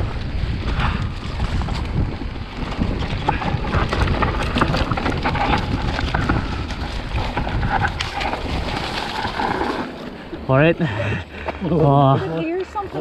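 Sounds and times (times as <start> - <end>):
wind on microphone: 0.0 - 10.1
bike rattling over bumps: 0.0 - 13.0
bike tyres on rough ground: 0.0 - 13.0.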